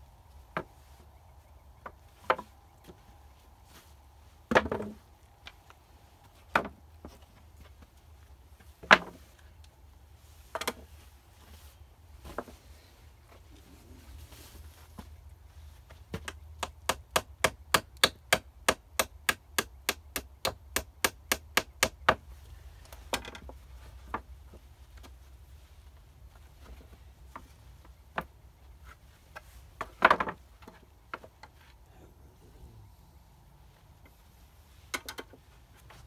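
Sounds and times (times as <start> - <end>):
hammer striking wood: 16.6 - 22.2.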